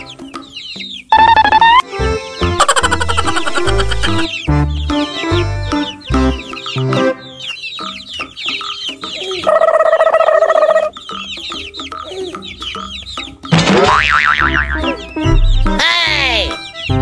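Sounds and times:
background music: 0.0 - 17.0
chicks peeping: 0.0 - 17.0
held pitched call: 1.1 - 1.8.

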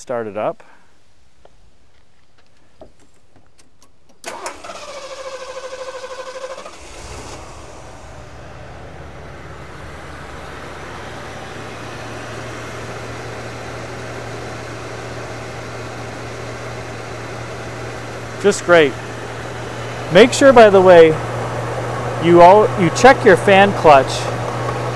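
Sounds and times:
engine cranking on starter: 4.2 - 24.9
engine idling: 4.3 - 24.9.

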